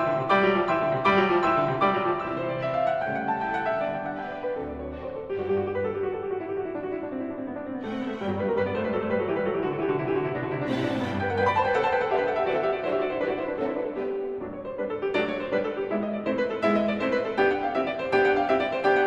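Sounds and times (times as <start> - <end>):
instrumental piano music: 0.0 - 19.0.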